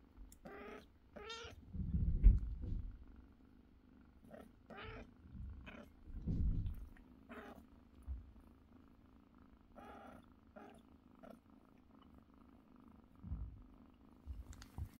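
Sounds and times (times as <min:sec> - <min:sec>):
cat purring: 0:00.0 - 0:15.0
cat calling: 0:00.4 - 0:01.6, 0:04.7 - 0:05.1
low bumps: 0:01.7 - 0:03.0, 0:05.3 - 0:07.0.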